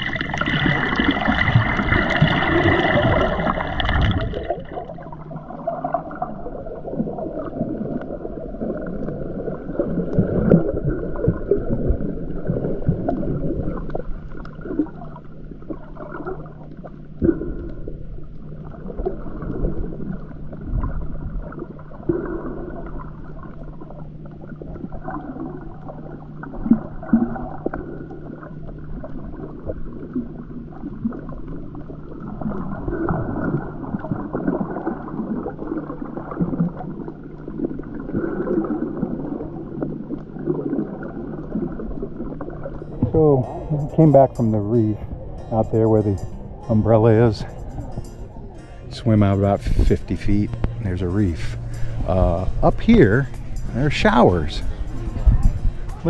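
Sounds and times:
underwater sloshing and gurgling: 0:00.0 - 0:56.0
water splashing: 0:00.0 - 0:56.0
steady low hum: 0:42.6 - 0:56.0.

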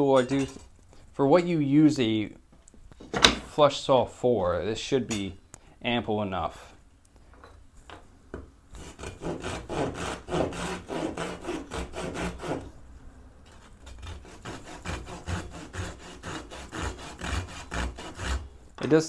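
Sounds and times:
pull saw rasping through wood: 0:08.8 - 0:12.7, 0:13.5 - 0:18.5.

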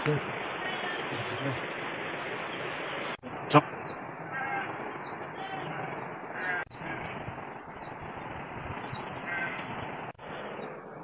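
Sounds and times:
steady outdoor hiss: 0:00.0 - 0:11.0
bird calling: 0:03.8 - 0:07.9, 0:08.8 - 0:10.7.

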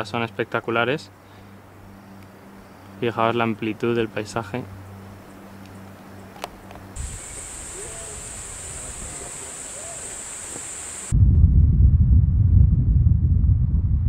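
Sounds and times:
faint low bird calls: 0:07.0 - 0:11.1
high-pitched insect buzz: 0:07.0 - 0:11.1
low hum: 0:07.0 - 0:14.0
loud low rumble: 0:11.1 - 0:14.0.

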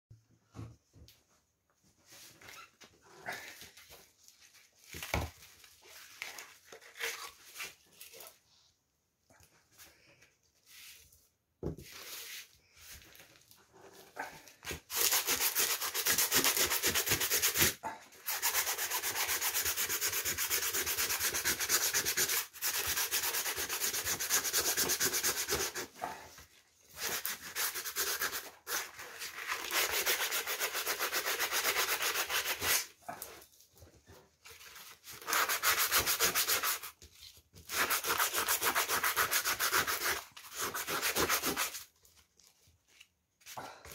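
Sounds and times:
sanding sponge scraping metal: 0:37.7 - 0:41.8
soft handling sounds: 0:41.9 - 0:43.9.

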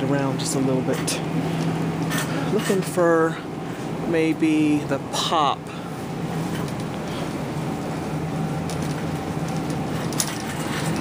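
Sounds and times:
low steady hum: 0:00.0 - 0:11.0
shopping cart wheels rumbling: 0:02.0 - 0:03.4, 0:06.2 - 0:11.0.

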